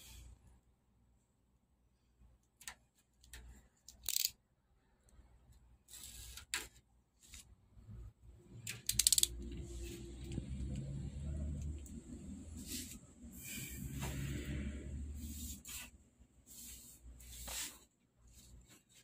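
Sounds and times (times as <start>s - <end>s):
tape clicks and scrapes on metal: 2.4s - 4.4s, 8.5s - 10.9s.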